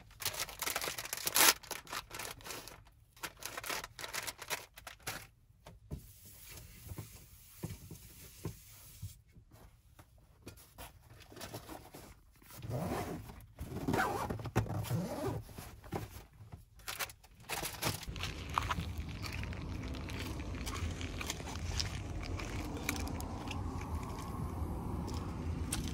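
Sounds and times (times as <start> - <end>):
fabric bag rustling: 17.0 - 25.9.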